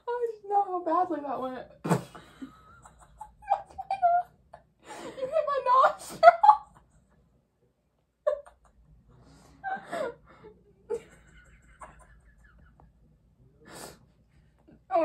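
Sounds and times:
girls giggling: 0:01.8 - 0:07.2, 0:08.2 - 0:13.2.

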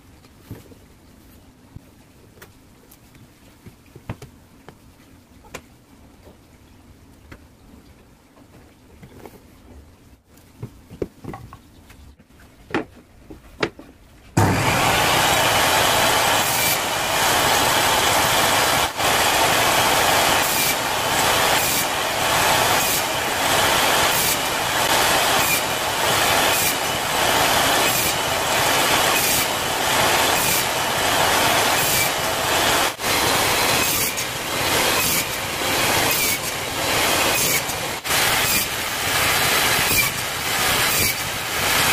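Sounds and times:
table saw cutting wood: 0:14.4 - 0:41.9.

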